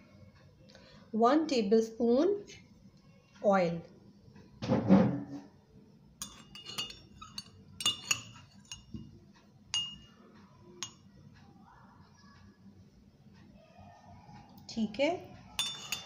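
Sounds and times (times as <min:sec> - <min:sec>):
kitchenware clinking on tabletop: 0:06.2 - 0:10.2, 0:10.8 - 0:11.1, 0:15.6 - 0:16.0.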